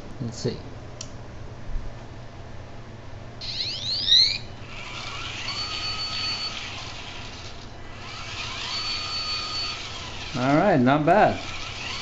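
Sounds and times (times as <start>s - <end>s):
rising buzzer beeps: 3.4s - 4.5s, 5.2s - 7.0s, 8.6s - 10.0s
small gear motors whirring: 3.4s - 12.0s.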